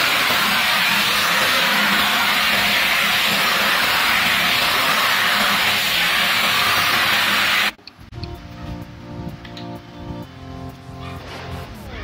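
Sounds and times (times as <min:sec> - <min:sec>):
vacuum cleaner suction hiss: 0:00.0 - 0:07.8.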